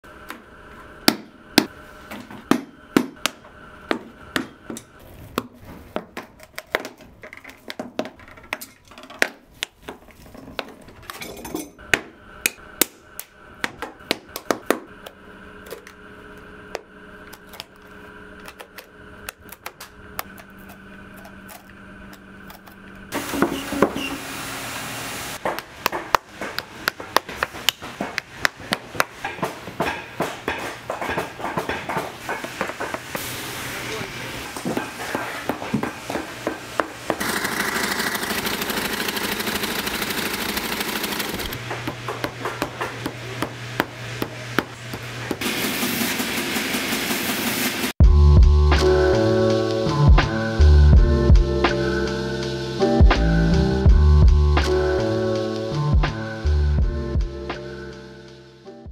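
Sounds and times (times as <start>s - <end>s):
machine noise: 11.8s - 57.3s.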